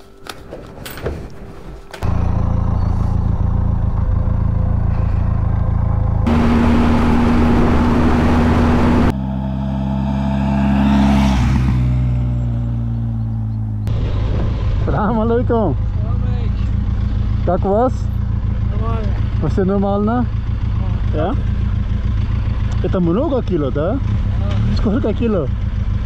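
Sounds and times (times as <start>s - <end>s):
motorcycle engine cruising: 2.0s - 26.0s
motorcycle passing by: 2.0s - 26.0s.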